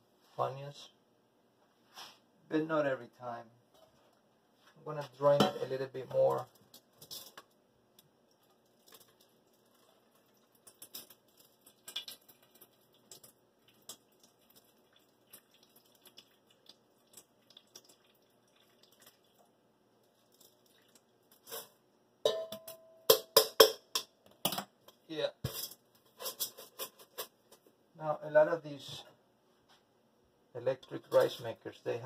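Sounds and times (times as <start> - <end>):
water dripping into metal bowl: 8.2 - 21.1
metal pot clanking: 22.2 - 24.6.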